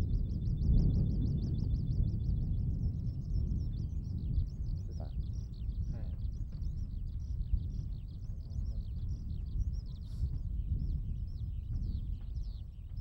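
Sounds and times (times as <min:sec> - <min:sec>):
skylark singing: 0:00.0 - 0:13.0
steady low rumble: 0:00.0 - 0:13.0.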